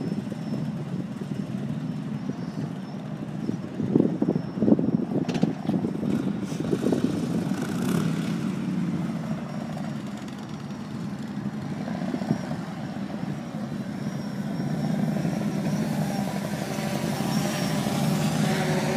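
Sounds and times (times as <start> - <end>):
high motor whine: 7.3 - 18.9.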